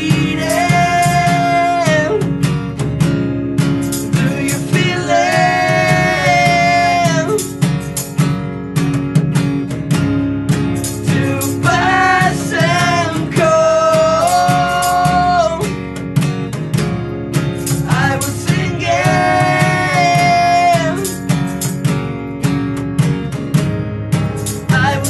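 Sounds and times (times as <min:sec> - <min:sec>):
man singing: 0:00.0 - 0:02.4, 0:04.0 - 0:07.6, 0:11.0 - 0:15.8, 0:17.8 - 0:21.3, 0:24.6 - 0:25.0
electric guitar: 0:00.0 - 0:25.0
strummed acoustic guitar: 0:00.0 - 0:25.0.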